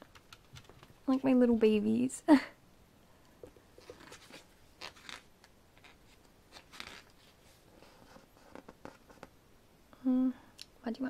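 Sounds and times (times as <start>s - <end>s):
paper pages turning: 3.8s - 7.4s.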